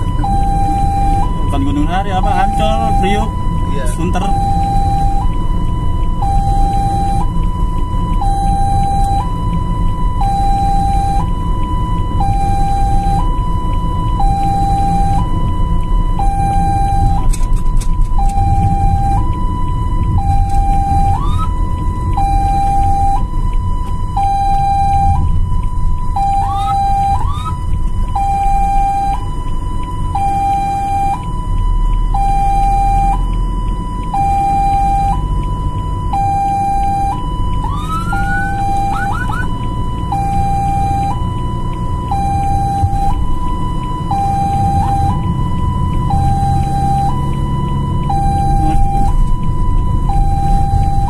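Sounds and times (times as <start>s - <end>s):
ambulance siren two-tone: 0.0s - 51.0s
siren rising whoops: 0.0s - 51.0s
vehicle rumble: 0.0s - 51.0s.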